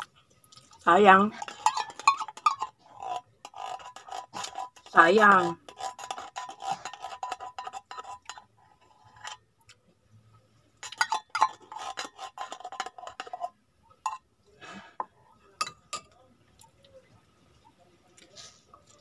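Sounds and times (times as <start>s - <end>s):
utensil scraping metal tin: 1.1s - 9.5s, 10.8s - 14.2s.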